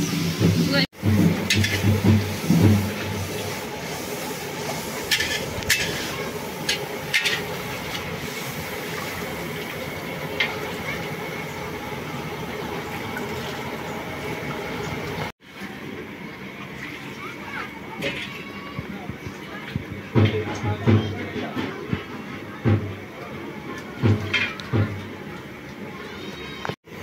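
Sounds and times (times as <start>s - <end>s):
ladle knocking and scraping pan: 0.4s - 3.5s, 5.0s - 8.0s.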